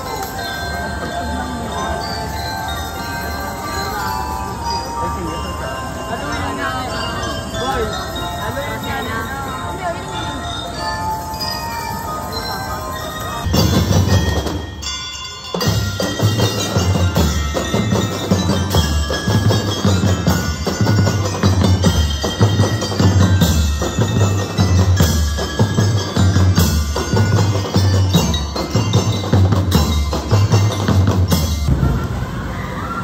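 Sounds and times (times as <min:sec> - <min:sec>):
bell lyres ringing melody: 0:00.0 - 0:31.8
marching band playing: 0:11.4 - 0:32.6
bass drums beating: 0:13.5 - 0:14.9, 0:15.6 - 0:32.4.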